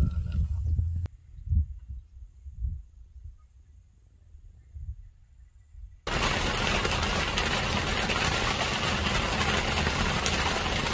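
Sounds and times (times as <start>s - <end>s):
steady rain: 6.1s - 10.9s.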